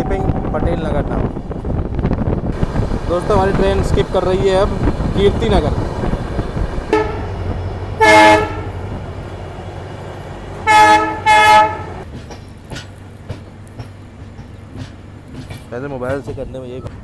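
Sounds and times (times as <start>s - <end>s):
rumble of moving train: 0.0s - 17.0s
train horn blasts: 6.9s - 7.4s, 8.0s - 8.9s, 10.6s - 12.0s
rail clicks: 11.8s - 17.0s.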